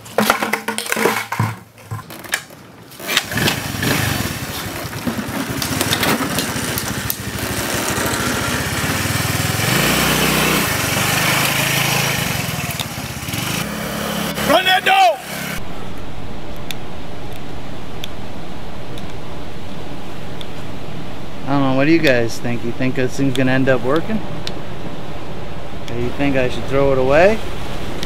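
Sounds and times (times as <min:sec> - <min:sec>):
scooter engine puttering: 0:00.0 - 0:15.6.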